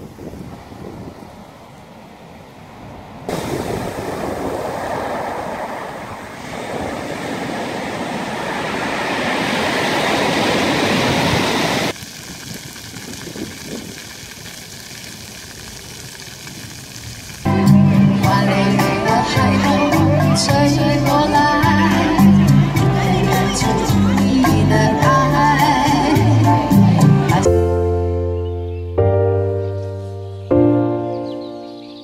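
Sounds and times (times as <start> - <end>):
surf breaking on pebble beach: 3.0 - 17.6.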